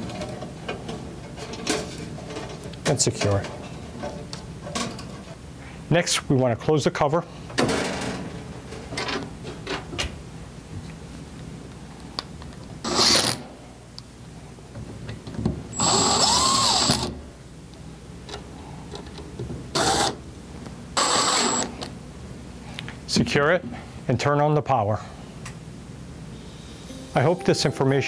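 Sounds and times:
cordless drill driving screws: 0:15.8 - 0:17.1, 0:21.0 - 0:21.7.

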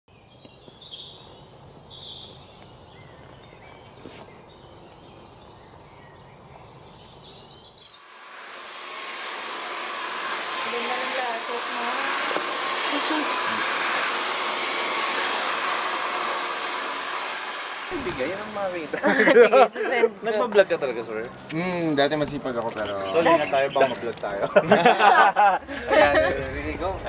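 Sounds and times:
birds chirping: 0:00.1 - 0:08.1, 0:17.9 - 0:27.0
hair dryer blowing: 0:08.0 - 0:20.0, 0:24.7 - 0:26.8.

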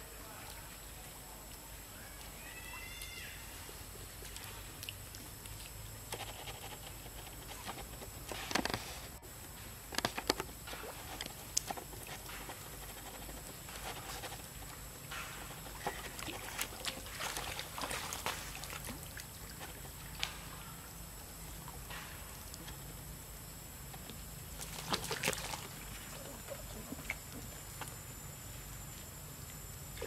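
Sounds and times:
water splashing and lapping: 0:10.0 - 0:20.6, 0:24.5 - 0:27.9.

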